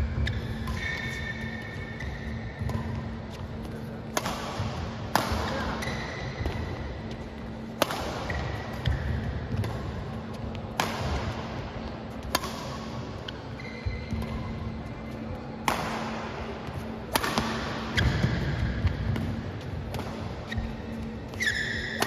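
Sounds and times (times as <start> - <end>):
shoe squeaks: 0.1 - 3.4, 5.6 - 6.4, 13.4 - 15.2, 20.4 - 22.0
racket striking shuttlecock: 0.2 - 10.1, 10.7 - 11.5, 12.2 - 14.6, 15.6 - 22.0.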